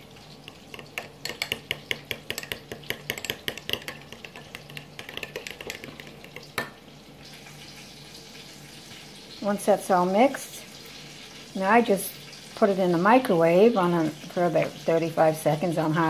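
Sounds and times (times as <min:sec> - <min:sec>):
spoon clinking in glass bowl: 0:00.5 - 0:06.8
spoon knocking on glass: 0:00.6 - 0:06.8.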